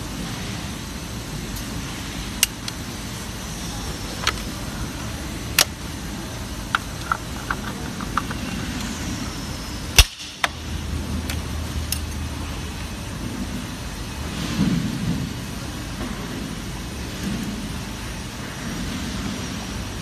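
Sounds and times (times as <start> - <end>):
factory hum: 0.0 - 20.0
plastic parts clicking together: 4.2 - 4.5, 5.5 - 5.8, 6.7 - 8.9.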